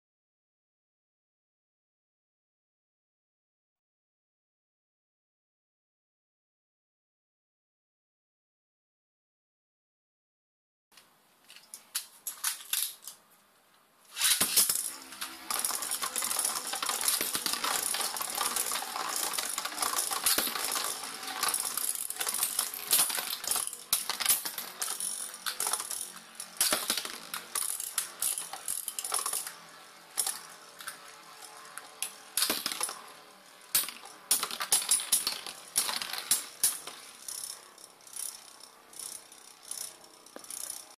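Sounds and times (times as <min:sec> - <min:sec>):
spinning tops clattering: 0:14.1 - 0:40.9.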